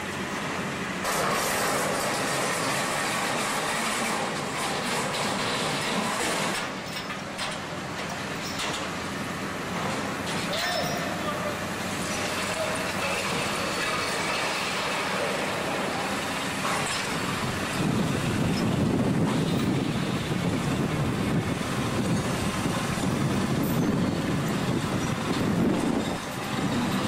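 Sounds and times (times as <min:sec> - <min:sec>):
engine rumble: 0:00.0 - 0:27.0.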